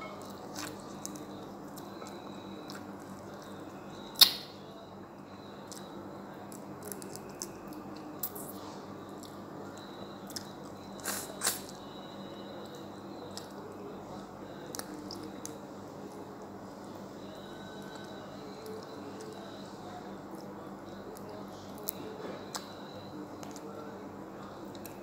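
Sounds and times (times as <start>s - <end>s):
chewing and biting: 0.2s - 3.6s.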